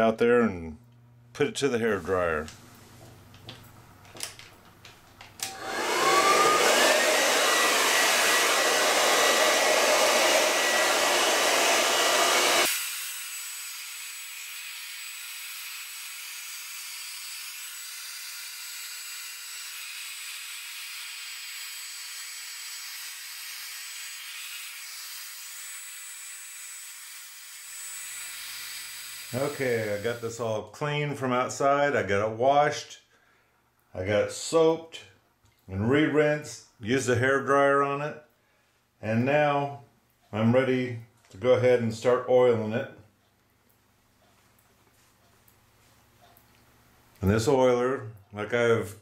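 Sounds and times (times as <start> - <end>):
hair dryer blowing: 5.4 - 30.4.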